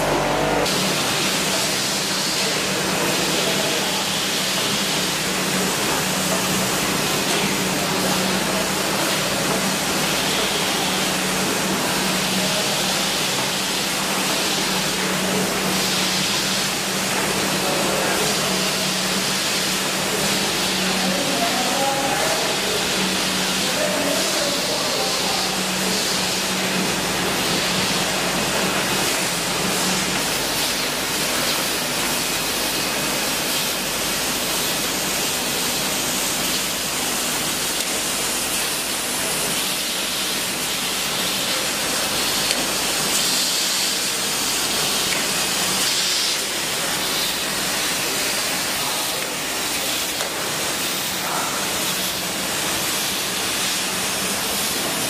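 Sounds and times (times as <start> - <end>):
low hum: 0.0 - 0.7
packaging machinery hissing: 0.0 - 55.0.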